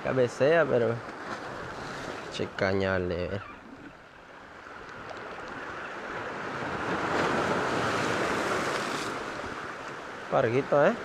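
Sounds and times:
waves surging over rocky shore: 4.4 - 11.0.

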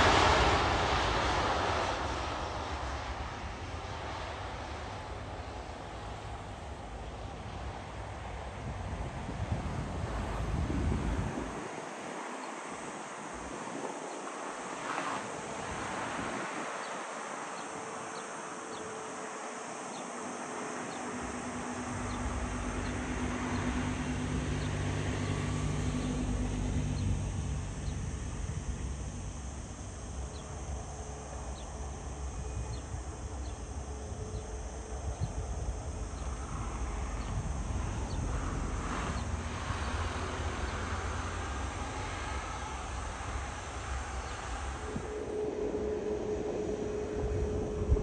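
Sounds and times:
faint wind hiss: 0.0 - 48.0
jet engines rumbling: 0.0 - 48.0
high insect ticks: 11.2 - 45.4.

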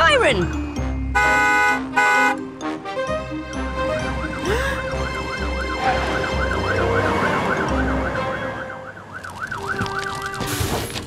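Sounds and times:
truck engines rumbling: 0.0 - 11.0
cartoon fire engine siren yelping: 4.1 - 10.4.

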